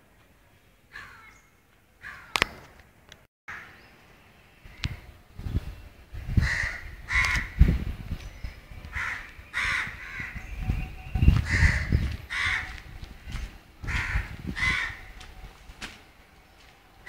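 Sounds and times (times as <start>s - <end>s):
crows cawing: 0.9s - 1.4s, 2.0s - 2.5s, 3.5s - 3.8s, 6.4s - 7.6s, 8.9s - 10.4s, 11.4s - 12.9s, 13.8s - 15.2s
low rumble with thuds: 9.6s - 16.1s.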